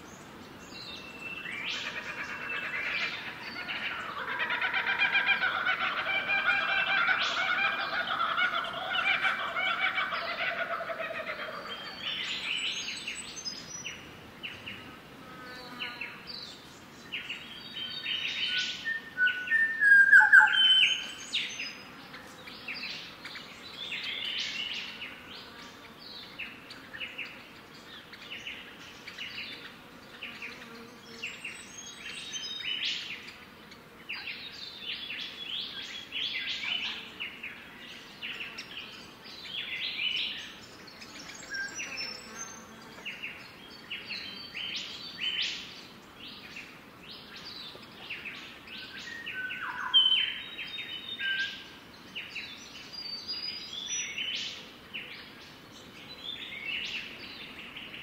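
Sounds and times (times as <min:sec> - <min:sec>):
chicken calling: 0:01.8 - 0:11.8
birds chirping: 0:15.8 - 0:58.0.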